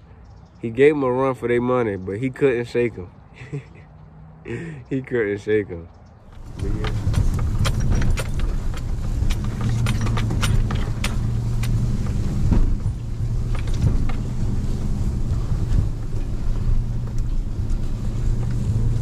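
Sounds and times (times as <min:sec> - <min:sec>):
truck engine and road drone: 0:00.0 - 0:19.0
small clicks and rattles: 0:06.3 - 0:19.0.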